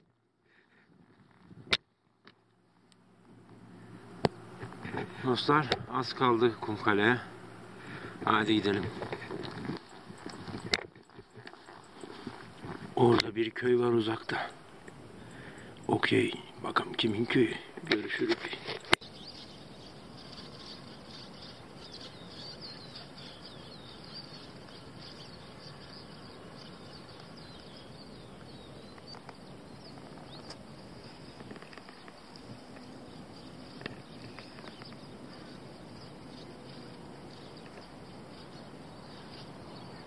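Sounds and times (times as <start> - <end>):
hiss of insects: 3.6 - 13.1, 13.9 - 40.0
bird chirps: 18.7 - 40.0.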